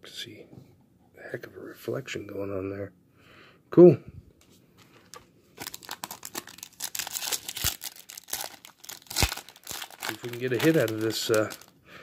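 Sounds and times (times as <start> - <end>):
foil wrapper crinkling and tearing: 5.1 - 11.8.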